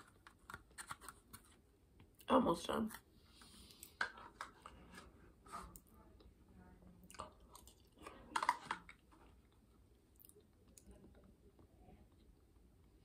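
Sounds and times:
wet chewing and mouth clicks: 0:07.0 - 0:11.2.

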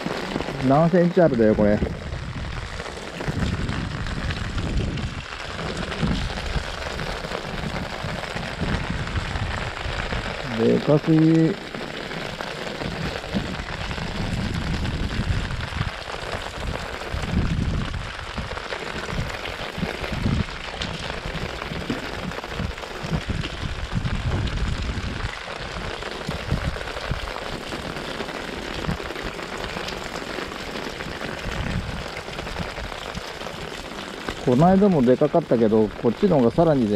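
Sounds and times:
heavy rain: 0:00.0 - 0:36.9
low thumps and rumbles: 0:01.4 - 0:10.5, 0:12.3 - 0:27.9, 0:31.0 - 0:33.4.

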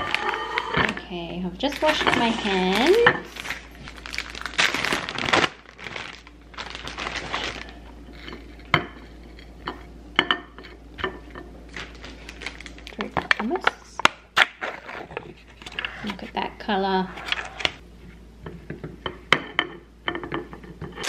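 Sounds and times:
plastic snack packet crinkling: 0:01.6 - 0:07.8, 0:11.7 - 0:13.4.

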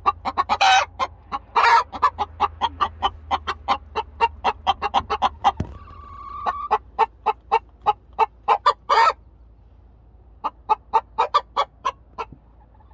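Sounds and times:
hens clucking: 0:00.0 - 0:09.3, 0:10.2 - 0:12.9
hen squawking: 0:00.2 - 0:07.4.

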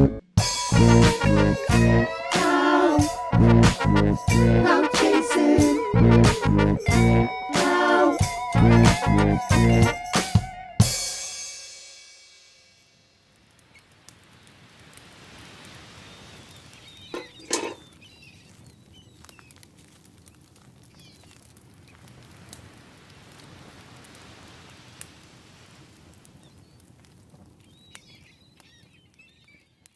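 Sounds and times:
steady rushing hiss: 0:00.4 - 0:03.3, 0:12.8 - 0:18.6, 0:21.6 - 0:27.5
small birds chirping: 0:16.0 - 0:19.6, 0:20.2 - 0:22.0, 0:27.5 - 0:29.9.

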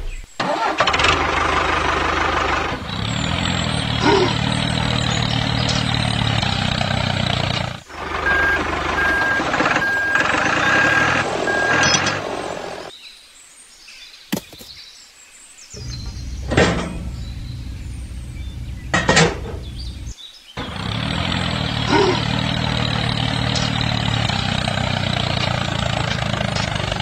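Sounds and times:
tractor engine running: 0:00.4 - 0:12.9, 0:15.8 - 0:27.0
reversing beeper: 0:08.0 - 0:12.9.

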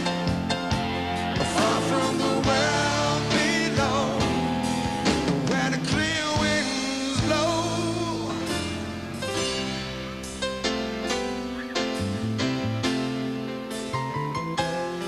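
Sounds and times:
live pop-rock band: 0:00.0 - 0:15.0
man singing: 0:01.4 - 0:08.9.

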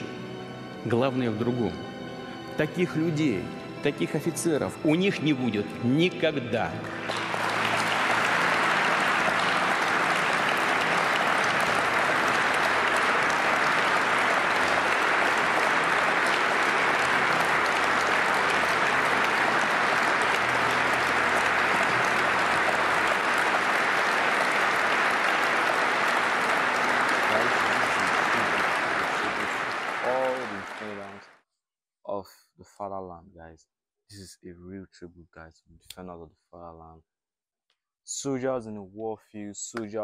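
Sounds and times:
audience applauding: 0:03.9 - 0:31.3.

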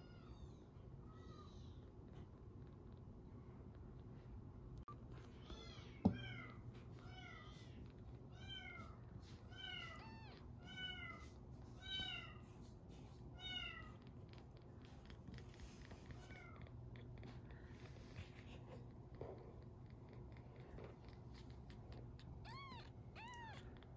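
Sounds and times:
kitten mewing: 0:20.1 - 0:23.9.

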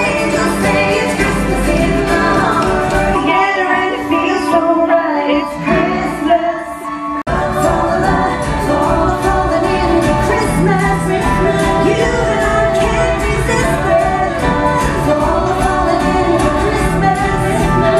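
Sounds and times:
folk band accompaniment: 0:00.0 - 0:04.8, 0:07.2 - 0:17.9
acoustic guitar: 0:00.0 - 0:06.3, 0:07.2 - 0:17.9
women singing: 0:00.0 - 0:17.9.

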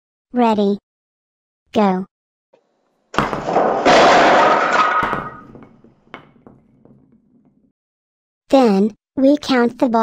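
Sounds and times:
small balls clattering: 0:03.2 - 0:07.0.

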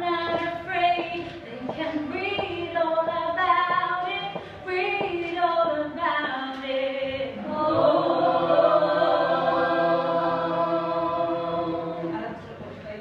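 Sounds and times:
voices singing: 0:06.6 - 0:12.4.

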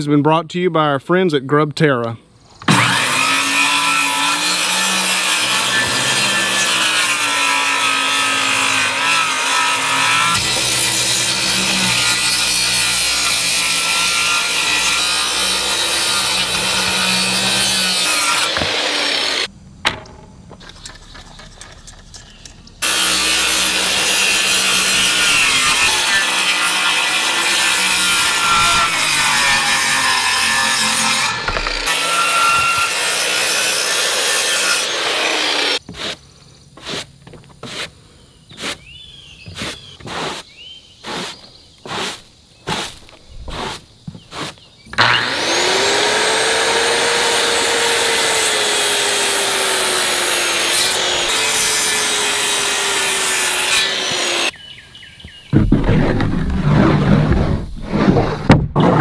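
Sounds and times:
circular saw cutting wood: 0:02.7 - 0:19.5, 0:22.8 - 0:36.2, 0:41.1 - 0:54.6
push broom sweeping wooden deck: 0:35.8 - 0:45.1, 0:55.6 - 0:59.0.

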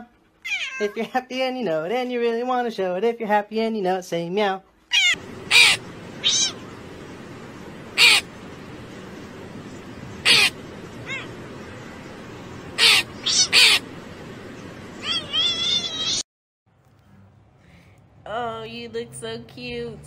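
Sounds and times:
crow cawing: 0:05.2 - 0:06.7, 0:07.9 - 0:08.4, 0:10.2 - 0:11.4, 0:12.7 - 0:13.9
steady hiss: 0:05.2 - 0:16.1.

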